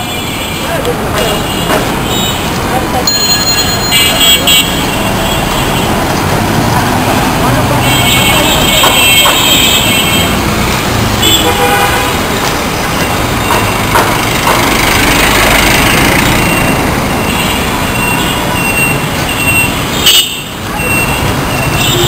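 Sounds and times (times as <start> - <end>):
busy street traffic: 0.0 - 22.0
sharp knock: 1.1 - 1.9, 13.4 - 14.8
car horn toot: 3.2 - 5.9, 7.8 - 10.3, 11.2 - 12.2, 20.0 - 21.0, 21.7 - 22.0.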